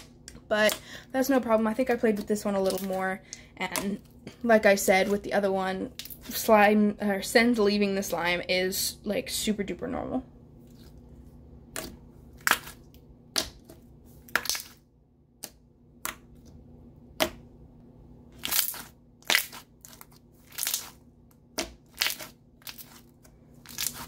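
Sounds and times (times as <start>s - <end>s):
hands squishing slime: 1.8s - 4.0s, 11.7s - 14.8s, 18.4s - 24.0s
slime popping and crackling: 18.4s - 23.0s.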